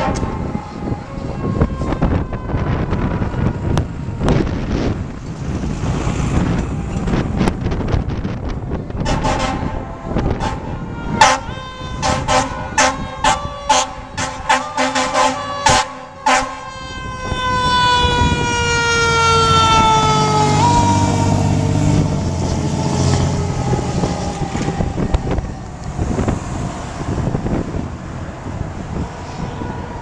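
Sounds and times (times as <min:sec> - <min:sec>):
fire engine air horn: 0:00.0 - 0:04.8, 0:09.0 - 0:22.1
siren: 0:00.0 - 0:05.2, 0:09.0 - 0:27.9, 0:28.9 - 0:30.0
truck engine rumble: 0:00.0 - 0:30.0.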